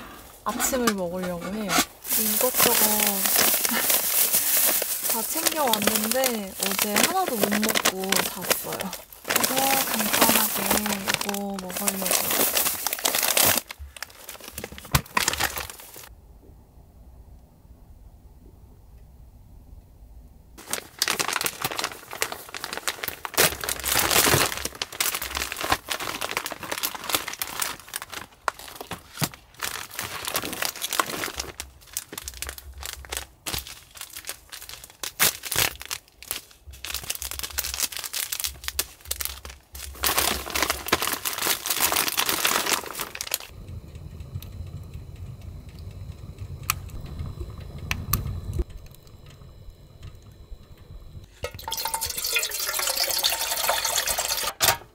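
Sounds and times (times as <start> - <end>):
wood fire rumbling and cracking: 0.0 - 16.1, 20.6 - 54.5
plastic packaging crinkling and tearing: 0.1 - 16.1, 20.6 - 43.5, 51.4 - 54.6.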